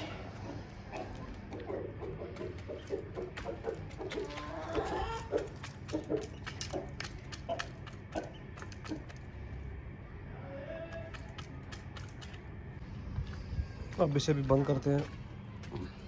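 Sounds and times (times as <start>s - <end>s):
hen clucking: 0.0s - 9.2s
beak pecking metal pan: 1.6s - 9.2s.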